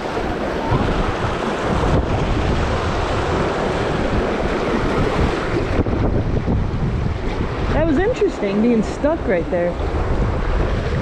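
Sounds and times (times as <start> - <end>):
rushing river whitewater: 0.0 - 11.0
wind buffeting microphone: 0.0 - 11.0.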